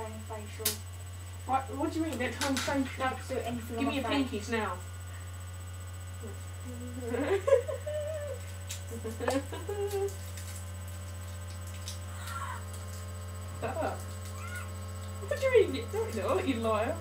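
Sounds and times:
electrical mains hum: 0.0 - 17.0
person humming: 6.2 - 8.5.

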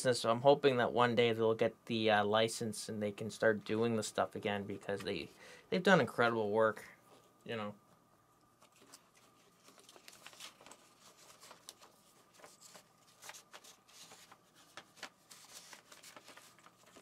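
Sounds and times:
paper and packaging rustling: 8.6 - 17.0.

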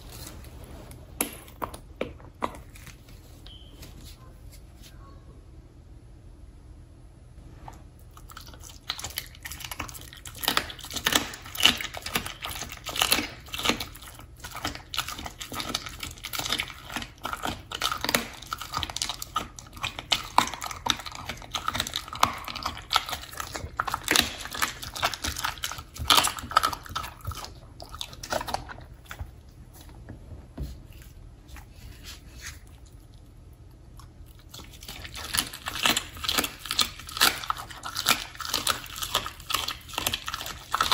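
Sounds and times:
dog chewing raw meat: 8.1 - 29.9, 33.9 - 40.9.

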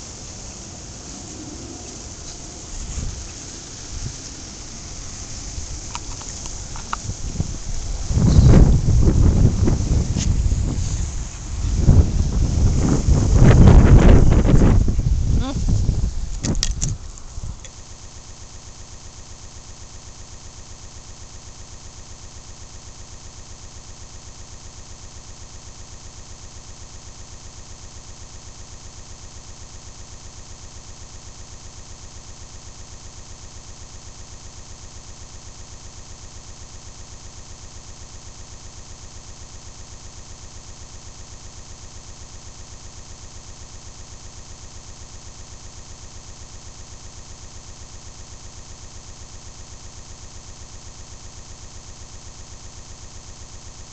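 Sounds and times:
pulsing digital buzz: 0.0 - 16.4.

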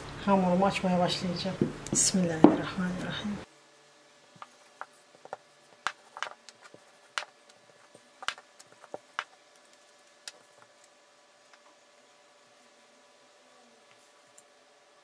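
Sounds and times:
faint steady hum: 0.0 - 15.0
rolling pin knocking on table: 4.8 - 6.4.

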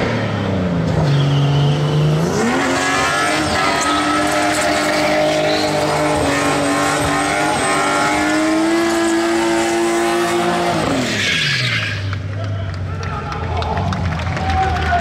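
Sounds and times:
engine at high revs: 0.0 - 12.2.

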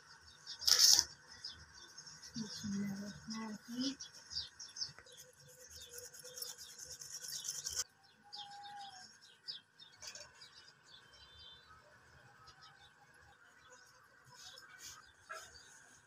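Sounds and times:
birds chirping: 0.1 - 16.0.

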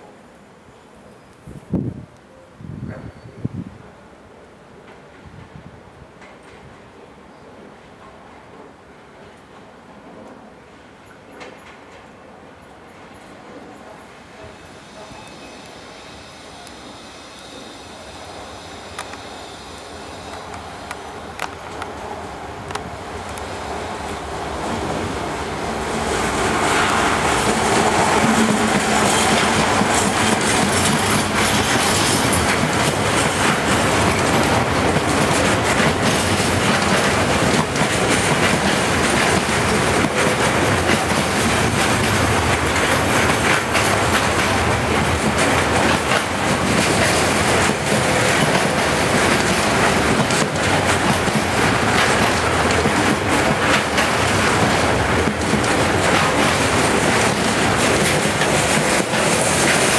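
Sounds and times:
train wagons rolling roar: 4.6 - 59.9
diesel locomotive engine: 12.9 - 59.9
wheels knocking on track: 27.2 - 59.9.

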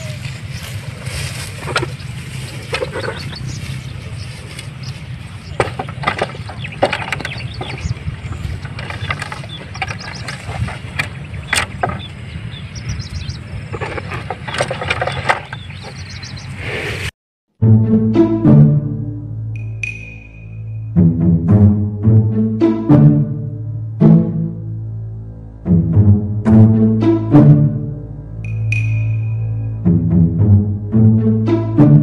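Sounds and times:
birds chirping: 0.0 - 17.1
plough dragged through stubble: 0.0 - 17.1
low rumble: 0.0 - 32.0.

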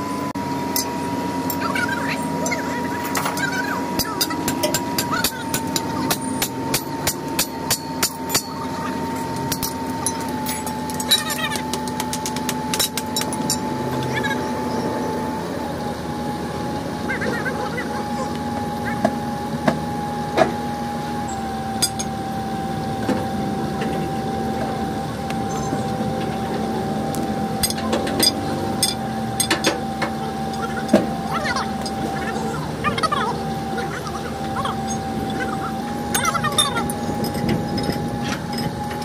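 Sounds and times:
steady hum: 0.0 - 39.0.

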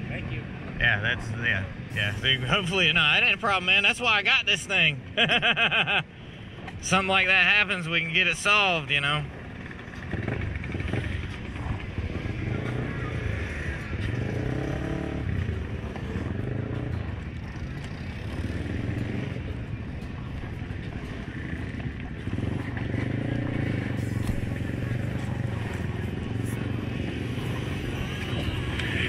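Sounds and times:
atv engine revving: 8.9 - 29.0.

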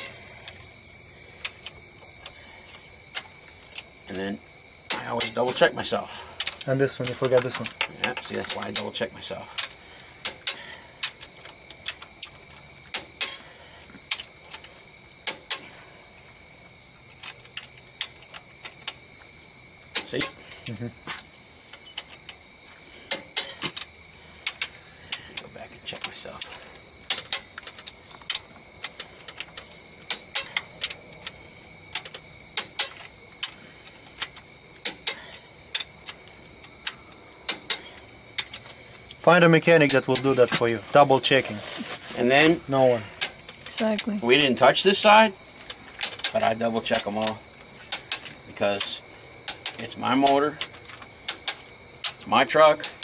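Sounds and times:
ratchet clicks: 23.1 - 38.7, 43.2 - 53.0
torque wrench clicking: 34.2 - 38.7, 47.0 - 52.2.

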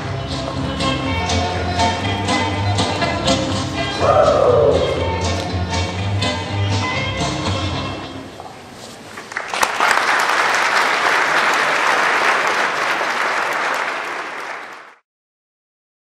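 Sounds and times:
audience applauding: 9.2 - 15.0.

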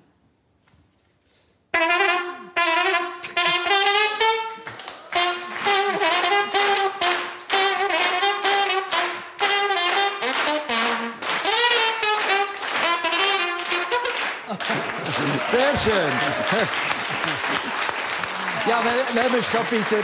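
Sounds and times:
homemade brass horn playing tune: 1.7 - 14.4.

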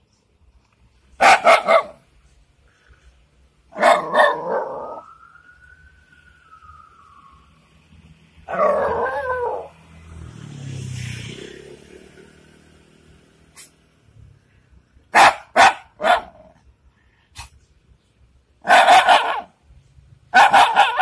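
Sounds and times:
dog bark-howl: 1.2 - 2.0, 3.7 - 5.1, 8.5 - 9.8, 15.2 - 16.5, 18.6 - 19.5, 20.3 - 21.0
dog barking: 1.2 - 2.0, 3.7 - 4.9, 15.1 - 16.6, 18.6 - 19.6, 20.3 - 21.0.

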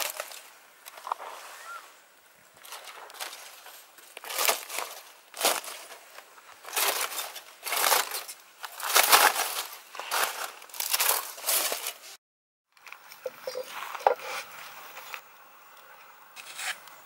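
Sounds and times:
foil and leaf wrapping crinkling: 0.0 - 1.2, 2.6 - 12.2.

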